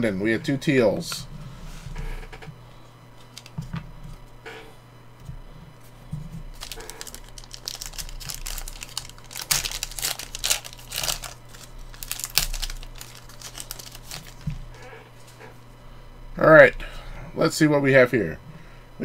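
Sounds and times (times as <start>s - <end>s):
wrapper tearing and crinkling: 6.5s - 14.8s.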